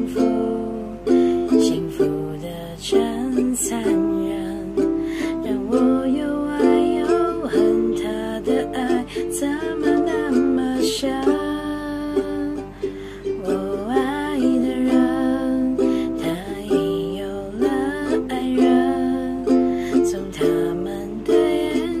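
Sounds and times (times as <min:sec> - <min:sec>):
ukulele chords: 0:00.0 - 0:22.0
woman singing: 0:00.0 - 0:22.0.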